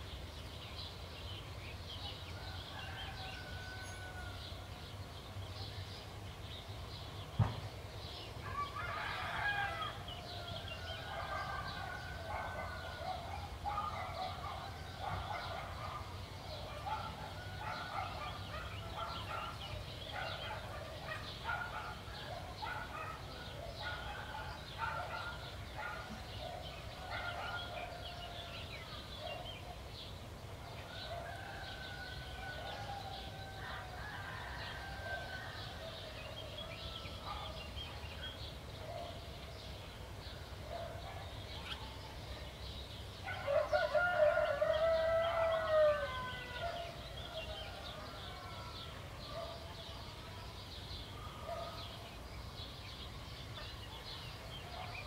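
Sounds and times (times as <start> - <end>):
small birds chirping: 0.0 - 55.0
rooster crowing: 2.4 - 4.5, 43.4 - 48.9.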